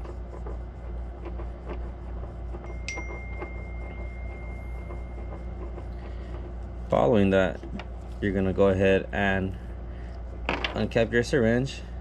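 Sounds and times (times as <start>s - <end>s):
gloved hands rubbing plastic: 0.0s - 11.0s
low hum: 0.0s - 12.0s
steady high ringing tone: 1.3s - 7.6s.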